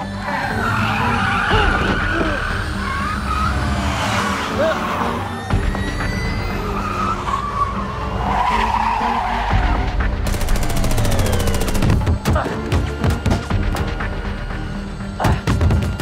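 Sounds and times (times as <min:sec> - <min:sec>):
car engine running hard: 0:00.0 - 0:05.7
car tyres skidding: 0:00.0 - 0:10.0
music: 0:00.0 - 0:16.0.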